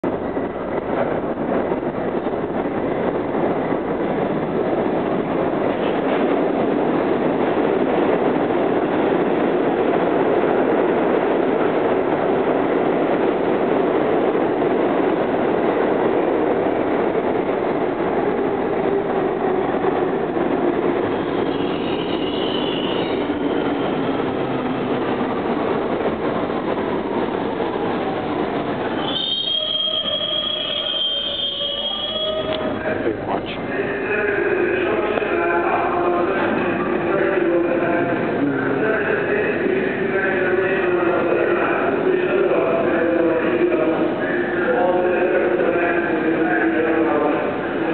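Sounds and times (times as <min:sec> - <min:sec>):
train wheels rumbling on rail: 0:00.0 - 0:47.9
high wheel squeal: 0:29.0 - 0:32.8.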